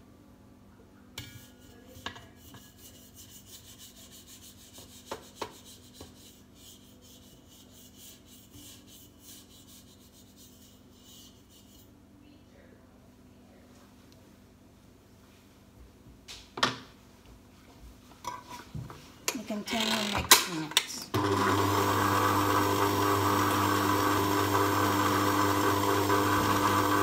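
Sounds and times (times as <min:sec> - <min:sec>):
stand mixer running: 0:21.1 - 0:27.0.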